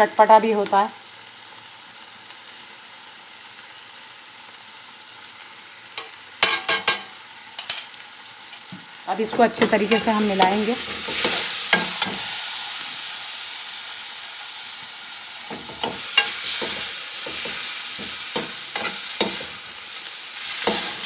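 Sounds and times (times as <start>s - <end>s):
vegetables sizzling in a wok: 0.0s - 21.0s
spatula scraping a metal wok: 9.3s - 12.4s, 15.5s - 19.8s, 20.4s - 21.0s.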